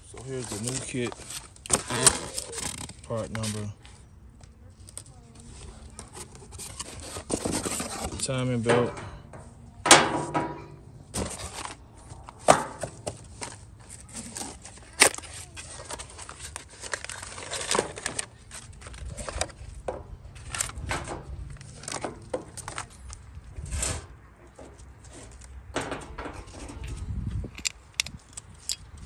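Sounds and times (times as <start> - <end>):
cardboard box rustling: 0.2 - 3.7, 4.9 - 8.4, 11.1 - 19.8.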